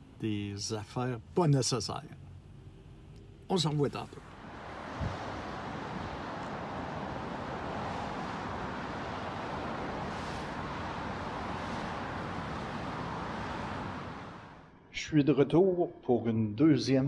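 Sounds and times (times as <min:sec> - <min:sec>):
cars hissing on wet roads: 0:04.3 - 0:14.7.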